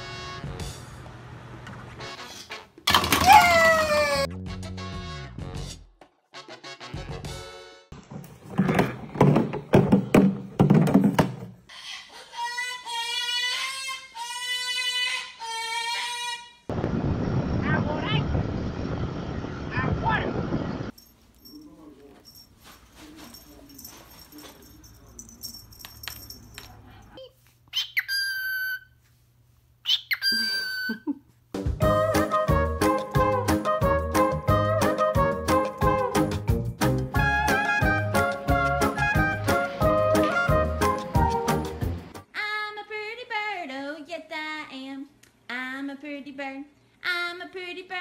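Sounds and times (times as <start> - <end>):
plastic jug knocking on stone: 8.0 - 11.6
faint rustles and clicks: 21.0 - 27.7
cockatoo calling: 27.7 - 29.0, 29.8 - 31.1.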